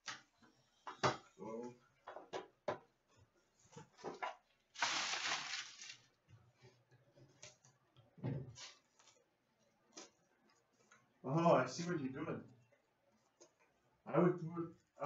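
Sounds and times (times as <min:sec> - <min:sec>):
shiny wrapper crinkling and tearing: 0:04.8 - 0:06.1.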